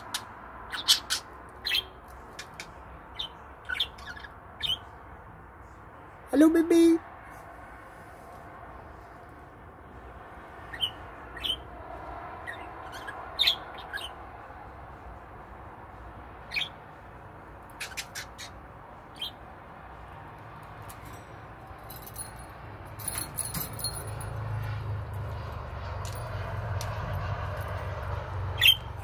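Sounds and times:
budgerigar chirping: 0:00.1 - 0:04.9, 0:10.7 - 0:11.6, 0:12.4 - 0:14.2, 0:16.5 - 0:16.8, 0:17.7 - 0:19.4.

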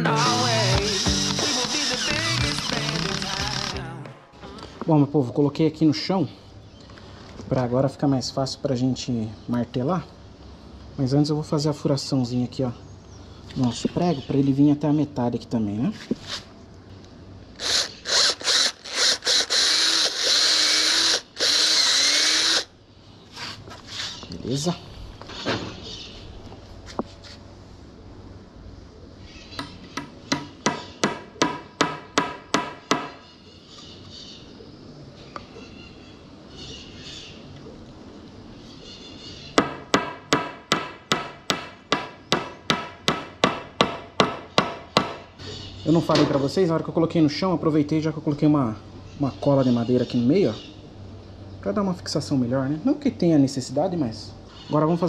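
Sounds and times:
cordless drill boring into wood: 0:00.2 - 0:03.8, 0:17.6 - 0:22.7.

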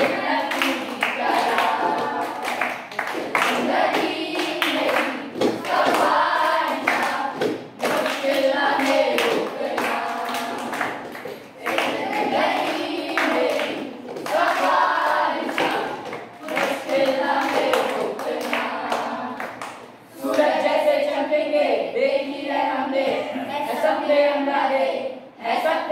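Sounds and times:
children clapping: 0:00.0 - 0:20.5
children singing in unison: 0:00.0 - 0:25.9.

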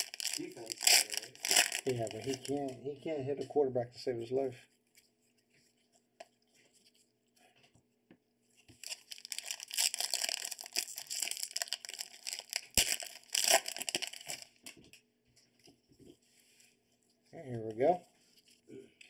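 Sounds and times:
foil wrapper crinkling and tearing: 0:00.0 - 0:02.8, 0:08.8 - 0:14.8.

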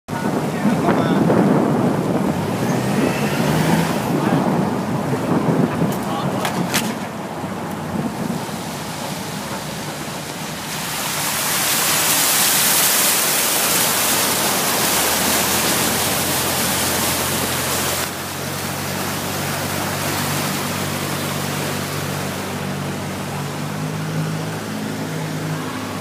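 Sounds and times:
engine humming: 0:00.1 - 0:26.0
floodwater rushing and splashing: 0:00.1 - 0:26.0.

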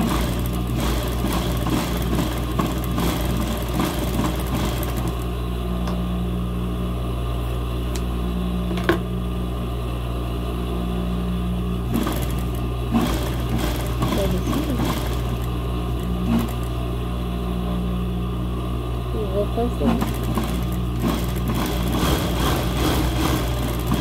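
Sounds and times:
sewing machine running: 0:00.0 - 0:05.4, 0:11.8 - 0:17.3, 0:19.4 - 0:24.0.

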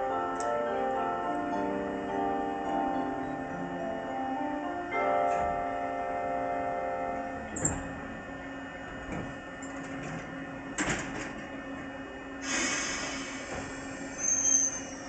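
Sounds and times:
chiming departure melody: 0:00.0 - 0:07.4
stopped train humming: 0:00.0 - 0:15.0
air hiss: 0:12.4 - 0:14.0.

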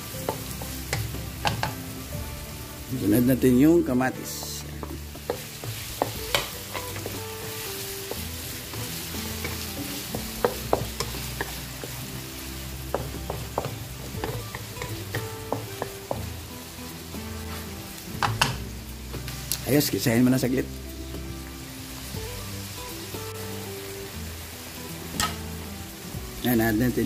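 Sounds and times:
vegetables sizzling in hot oil: 0:00.0 - 0:27.0
wooden spatula scraping: 0:17.3 - 0:17.8.

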